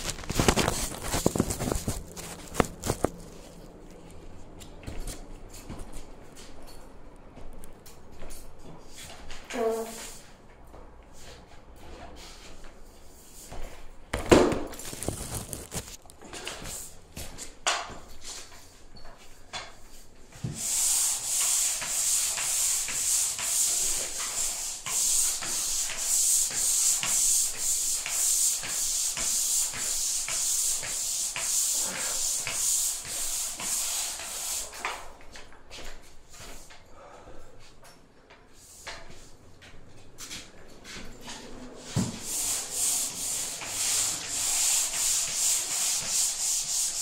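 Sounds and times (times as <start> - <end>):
pole sander scraping ceiling: 0.0 - 3.6, 20.3 - 35.1, 40.9 - 47.0.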